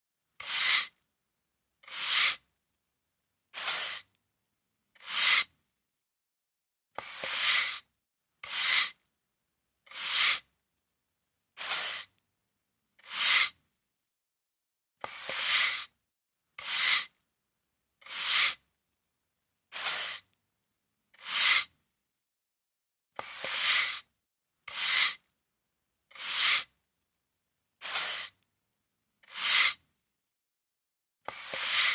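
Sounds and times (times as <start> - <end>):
broom sweeping floor: 0.4 - 0.9, 1.8 - 2.4, 3.6 - 4.1, 5.0 - 5.5, 7.0 - 7.8, 8.4 - 9.0, 9.9 - 10.4, 11.6 - 12.1, 13.0 - 13.6, 15.0 - 15.9, 16.6 - 17.1, 18.0 - 18.6, 19.7 - 20.3, 21.2 - 21.7, 23.2 - 24.1, 24.7 - 25.2, 26.1 - 26.7, 27.8 - 28.4, 29.2 - 29.8, 31.3 - 31.9.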